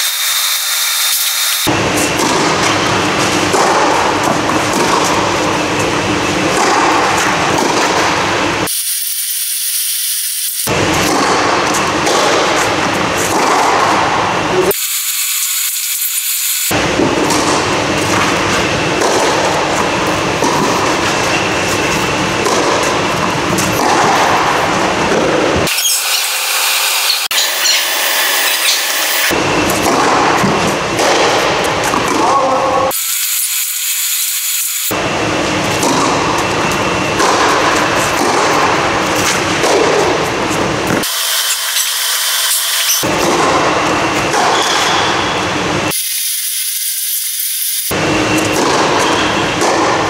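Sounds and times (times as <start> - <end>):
loud steady rushing noise: 0.0 - 8.7, 10.6 - 15.3, 16.2 - 33.7, 34.6 - 46.0, 47.9 - 50.0
racket hitting ball: 1.7 - 8.5, 10.7 - 14.3, 16.7 - 25.8, 28.5 - 32.9, 34.9 - 41.1, 43.0 - 45.5, 47.9 - 50.0.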